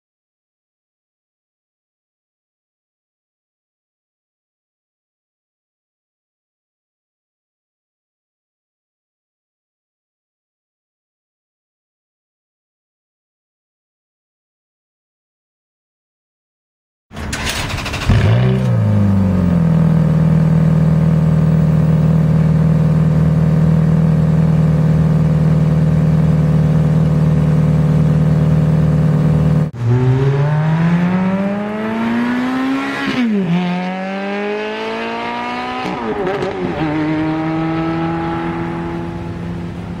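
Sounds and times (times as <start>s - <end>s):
car accelerating with gear shifts: 17.3s - 40.0s
sports car engine idling: 17.6s - 29.7s.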